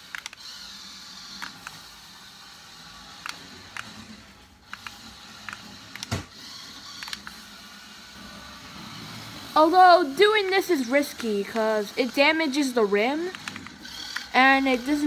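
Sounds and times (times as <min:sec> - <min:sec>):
sharp clicks and ticks: 0:00.0 - 0:00.6, 0:03.2 - 0:04.0, 0:04.6 - 0:06.2, 0:06.9 - 0:07.4, 0:10.2 - 0:15.0
toy car electric motor whir: 0:00.0 - 0:15.0.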